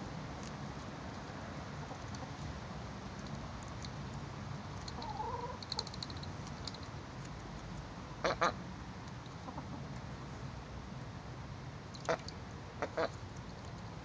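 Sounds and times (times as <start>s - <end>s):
duck quacking: 12.8s - 13.2s.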